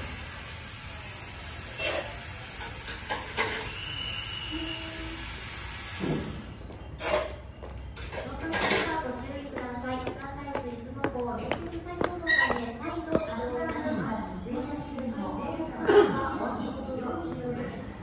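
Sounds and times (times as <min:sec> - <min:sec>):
air hiss of train door: 0:00.0 - 0:07.3.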